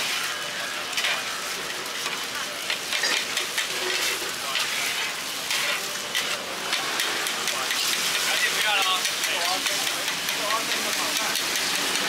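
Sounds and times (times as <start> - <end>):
eggs sizzling in a pan: 0.0 - 12.0
metal spatulas scraping: 2.9 - 11.8.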